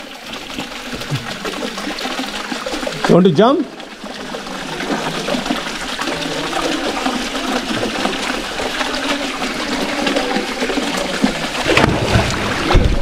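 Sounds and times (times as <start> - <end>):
water running into pool: 0.0 - 13.0
person splashing into pool: 11.6 - 13.0.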